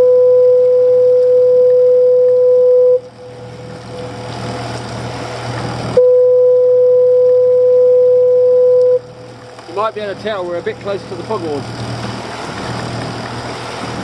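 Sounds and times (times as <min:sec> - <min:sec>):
foghorn blasts: 0:06.0 - 0:09.1.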